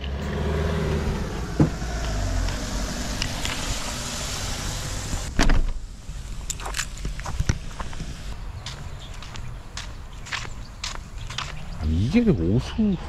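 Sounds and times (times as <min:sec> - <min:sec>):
steady outdoor hiss: 0:00.1 - 0:13.0
loud thump: 0:01.6 - 0:01.9, 0:05.3 - 0:05.8.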